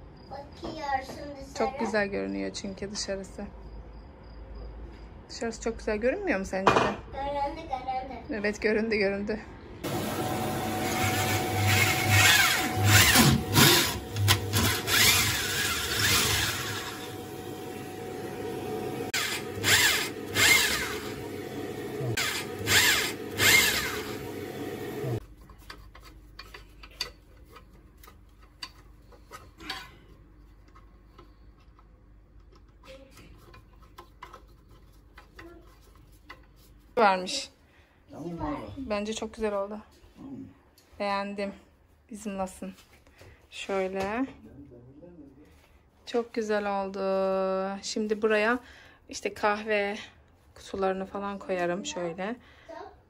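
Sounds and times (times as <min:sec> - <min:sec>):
power drill boring into wall: 0:09.9 - 0:25.2.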